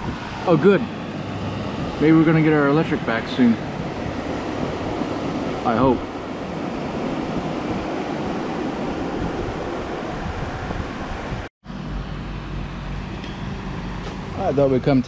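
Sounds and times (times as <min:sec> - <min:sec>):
storm rushing hiss: 0:00.0 - 0:11.5.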